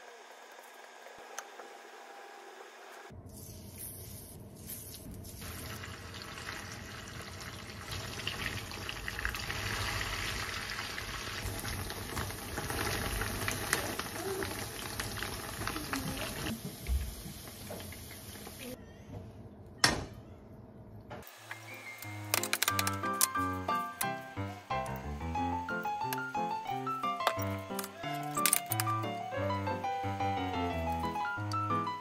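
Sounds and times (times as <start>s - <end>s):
chicken sizzling in frying pan: 5.4s - 18.7s.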